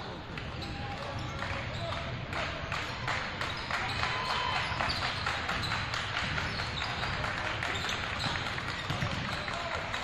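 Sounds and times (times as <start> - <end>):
crowd chatter: 0.0 - 10.0
basketball bouncing on court: 3.1 - 9.8.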